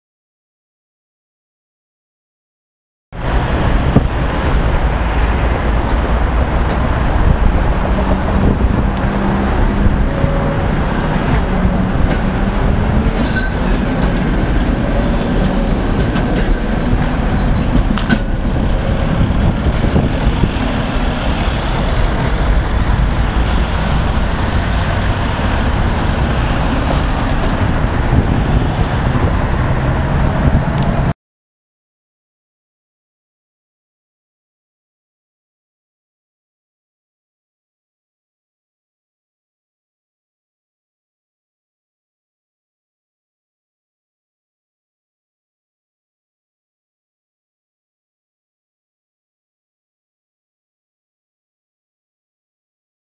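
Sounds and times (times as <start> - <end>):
road traffic: 3.2 - 31.2
trams rumbling on track: 3.2 - 31.2.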